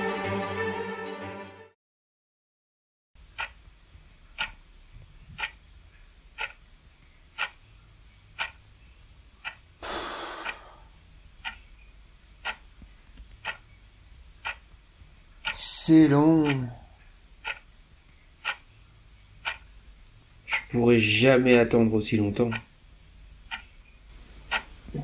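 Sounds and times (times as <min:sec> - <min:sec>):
clock ticking: 0:03.2 - 0:04.7, 0:05.3 - 0:05.7, 0:06.3 - 0:07.7, 0:08.3 - 0:12.8, 0:13.4 - 0:17.8, 0:18.4 - 0:18.8, 0:19.4 - 0:19.8, 0:20.4 - 0:22.8, 0:23.4 - 0:25.0
person sighing exhale: 0:09.8 - 0:10.9.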